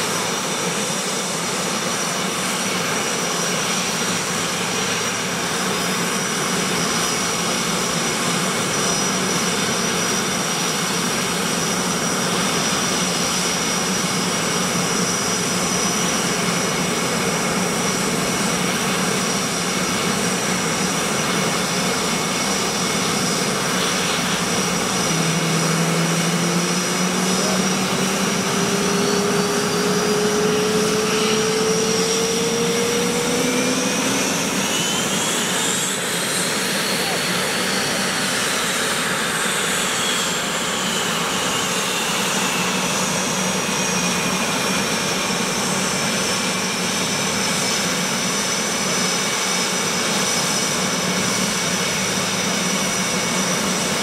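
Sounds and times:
jet engine roar and whine: 0:00.0 - 0:54.0
low tone rising in pitch: 0:25.0 - 0:34.7.

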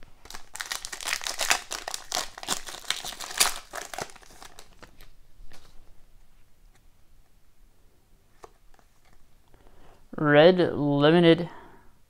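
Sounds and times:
card pack wrapper tearing and crinkling: 0:00.2 - 0:05.1
cards rustling: 0:00.2 - 0:05.9.

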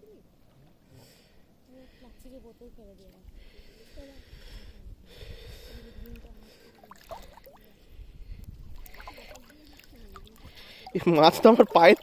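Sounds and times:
water swishing around wading legs: 0:05.7 - 0:12.0.

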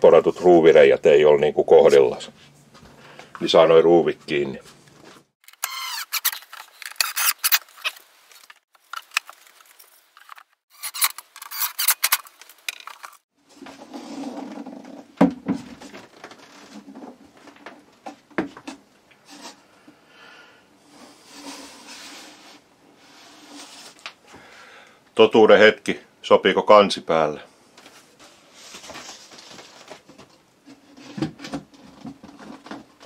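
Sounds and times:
drill driving screws into wood: 0:05.5 - 0:07.6.

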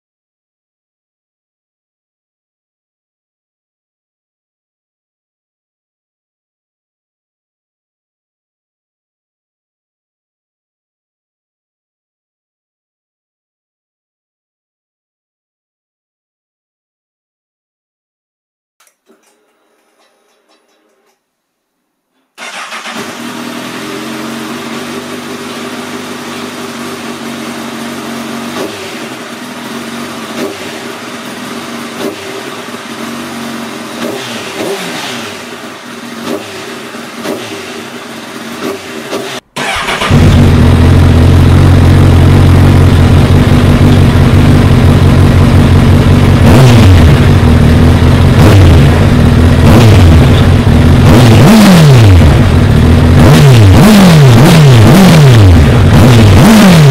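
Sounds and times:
engine throttle blips: 0:22.4 - 0:33.0, 0:33.6 - 0:56.9
motorcycle engine idling: 0:22.4 - 0:34.0, 0:35.3 - 0:38.6, 0:39.6 - 0:46.4, 0:47.1 - 0:51.0.

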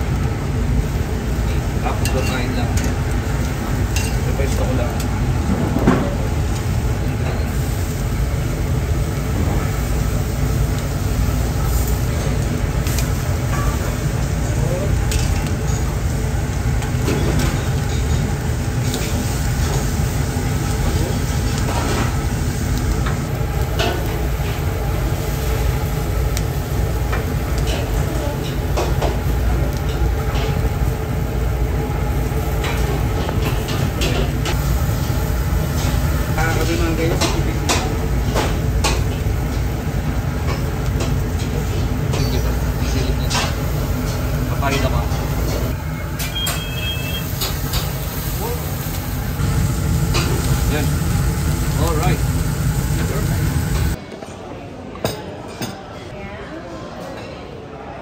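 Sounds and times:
fish sizzling on a grill: 0:00.0 - 0:54.0
low rumble of kitchen noise: 0:00.0 - 0:58.0
metal tongs clicking on grill: 0:02.0 - 0:03.0.

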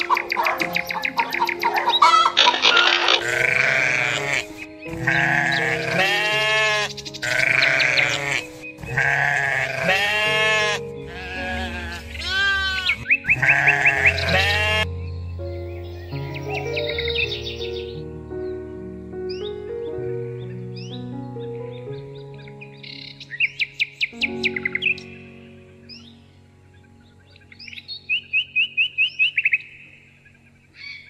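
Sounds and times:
background music with held tones: 0:00.0 - 0:31.0
animal bleating: 0:02.0 - 0:14.9.

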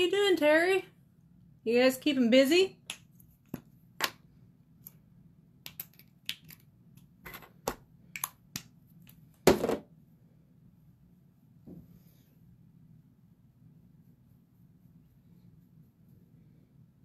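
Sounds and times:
small objects clicking and tapping: 0:05.6 - 0:09.2.

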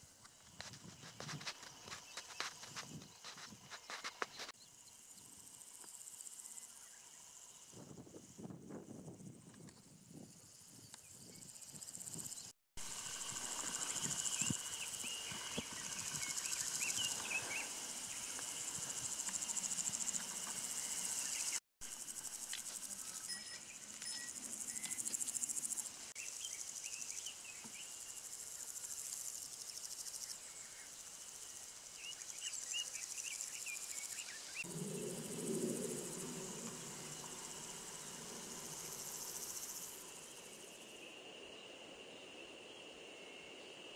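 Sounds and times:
insect chirps: 0:00.0 - 0:43.9
low insect buzz: 0:00.1 - 0:43.8
insect chorus shrill: 0:09.2 - 0:43.7.

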